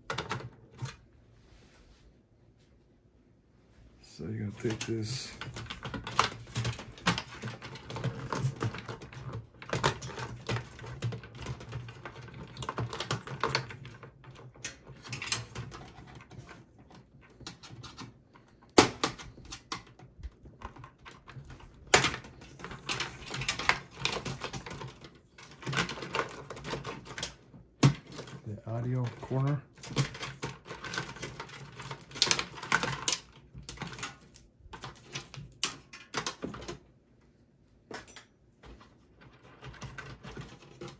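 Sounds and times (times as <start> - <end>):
plastic connectors clicking and rattling: 4.6 - 36.9.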